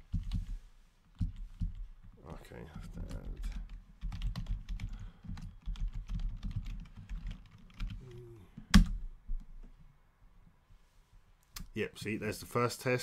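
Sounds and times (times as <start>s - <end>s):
computer keyboard typing: 2.9s - 8.0s.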